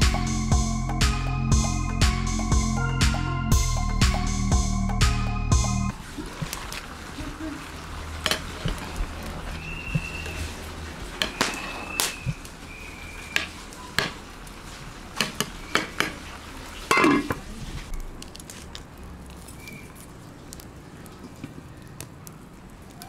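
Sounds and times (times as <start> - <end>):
wood fire crackling: 5.9 - 23.0
metal lid clattering onto pot: 16.9 - 17.4
metal spoon scraping metal pot: 16.9 - 17.4.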